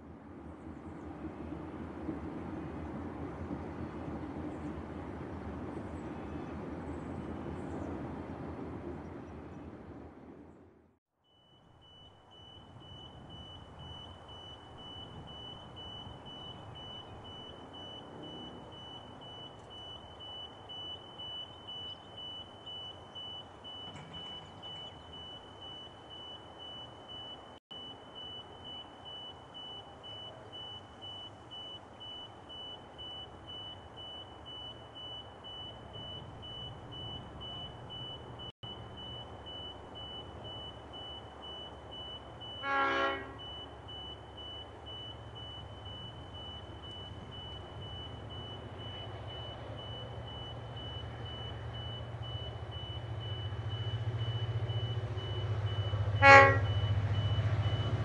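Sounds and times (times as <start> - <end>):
level crossing bell beeping: 11.3 - 42.8.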